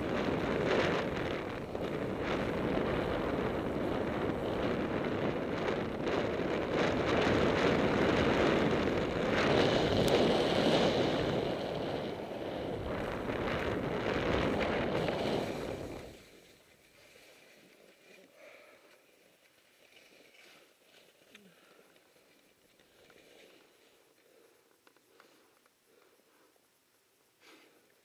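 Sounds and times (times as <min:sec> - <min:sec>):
wind buffeting microphone: 0:00.0 - 0:16.2
skis hissing over snow: 0:08.6 - 0:17.7.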